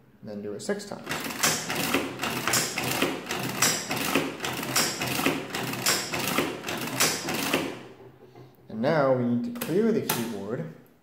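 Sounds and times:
adding machine crank clattering: 1.0 - 8.5.

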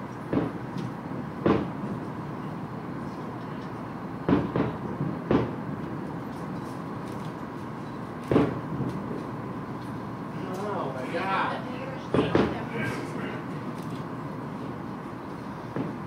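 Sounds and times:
distant firework booms: 1.4 - 1.8, 4.3 - 5.6, 8.3 - 8.9.

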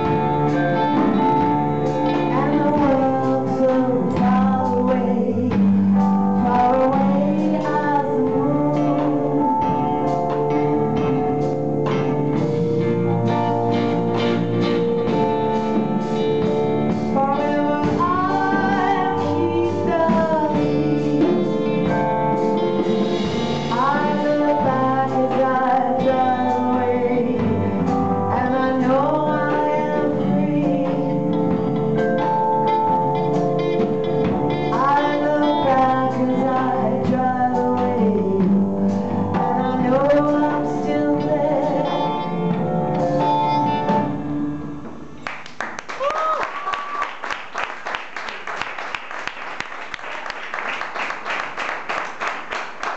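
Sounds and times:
keyboard: 0.0 - 45.5
drum kit: 0.0 - 52.9
electric guitar: 0.0 - 52.9
woman singing lead: 0.8 - 11.6, 17.0 - 22.0, 23.7 - 31.7, 34.6 - 43.5.

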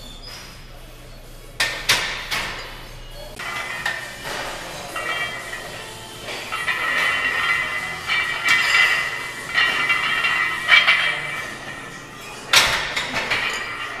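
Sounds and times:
barbell plates clinking and rattling: 3.4 - 14.0
sharp metal clank: 3.4 - 14.0.

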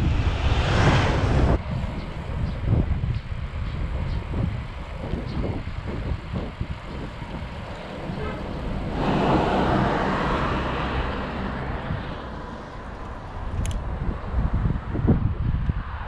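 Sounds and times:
wind rumble on microphone: 0.0 - 16.0
van driving past: 6.5 - 13.5.

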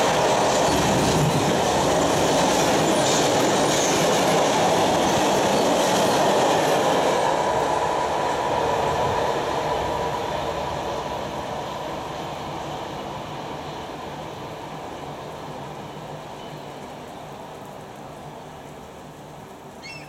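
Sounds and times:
freight train wagons rolling: 0.0 - 6.9.

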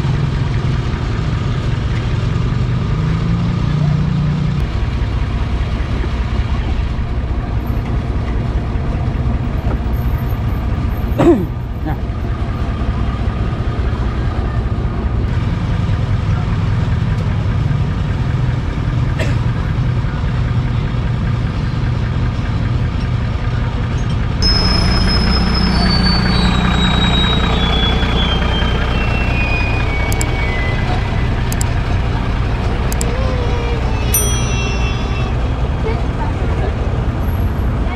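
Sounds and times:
truck engine idling: 4.7 - 37.9
short high tones stepping down: 24.4 - 35.8.

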